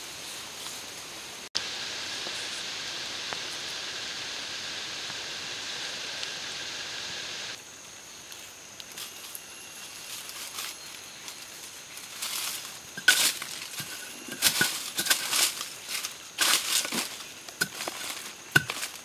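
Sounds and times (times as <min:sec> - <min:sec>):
forest ambience hiss: 0:00.0 - 0:19.0
faint rustles and clicks: 0:08.3 - 0:19.0.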